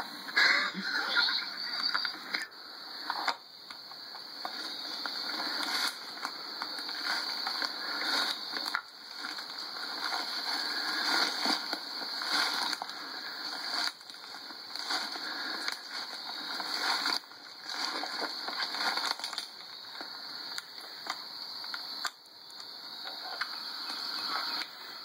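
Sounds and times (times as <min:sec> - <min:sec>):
footsteps crunching dry leaves: 0:04.4 - 0:20.2.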